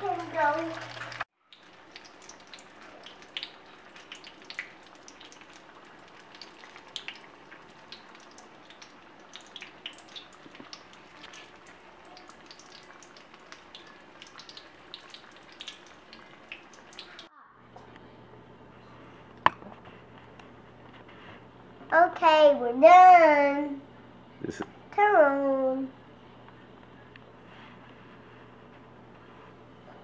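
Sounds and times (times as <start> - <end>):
spring rolls sizzling in hot oil: 0.0 - 17.3.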